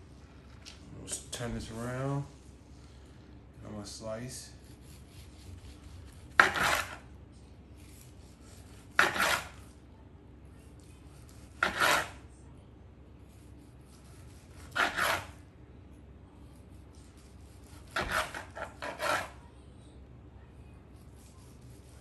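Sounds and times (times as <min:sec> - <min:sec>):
knife slicing meat on board: 0:04.6 - 0:07.0, 0:07.8 - 0:09.7, 0:11.2 - 0:12.2, 0:13.3 - 0:15.4, 0:17.0 - 0:19.4, 0:21.0 - 0:22.0.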